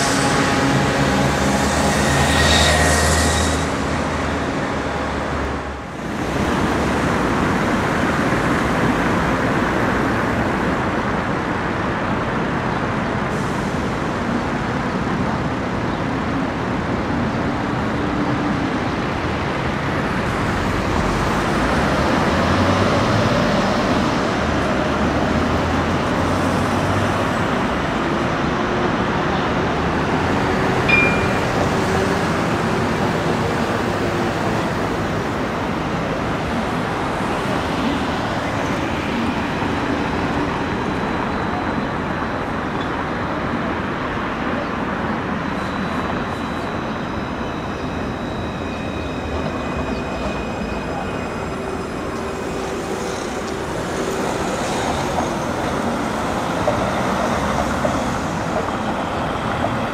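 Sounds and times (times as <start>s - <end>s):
city road traffic: 0.0s - 59.9s
tram approaching: 0.0s - 59.9s
tram running noise: 0.0s - 59.9s
tram motors humming: 13.8s - 59.9s.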